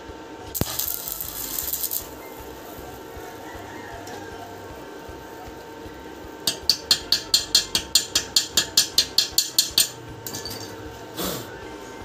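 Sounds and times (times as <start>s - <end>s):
metal tool knocking on hinge: 6.5s - 10.6s.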